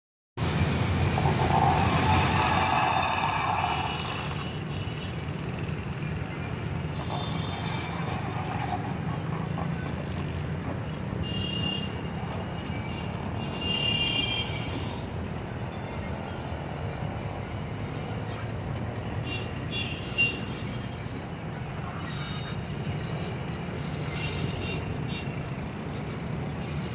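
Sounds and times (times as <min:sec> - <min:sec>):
diesel train rumbling: 0:00.4 - 0:11.3
high-pitched squeaks: 0:21.9 - 0:25.0.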